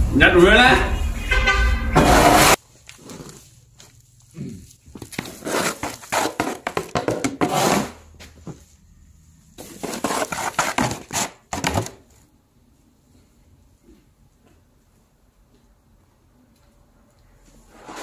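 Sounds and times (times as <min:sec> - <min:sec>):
plastic scoop scraping feed: 0:05.2 - 0:08.0, 0:09.6 - 0:11.9.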